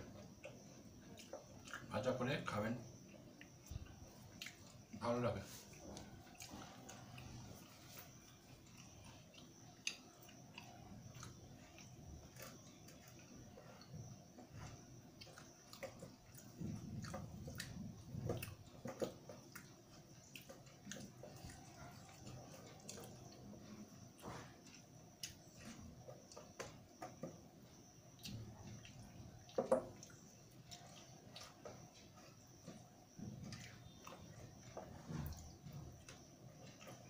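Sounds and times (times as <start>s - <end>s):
chewing: 0.0s - 37.0s.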